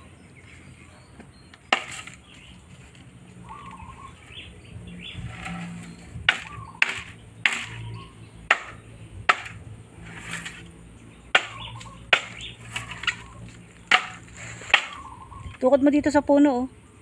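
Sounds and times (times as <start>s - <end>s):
machete chopping bamboo: 1.7s - 2.2s, 6.2s - 7.8s, 8.5s - 10.6s, 11.3s - 15.0s.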